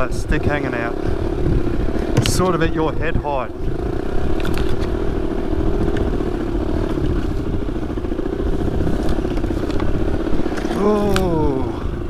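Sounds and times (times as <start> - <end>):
dirt bike engine running: 0.0 - 12.0
light knocks and rattles: 2.0 - 2.6.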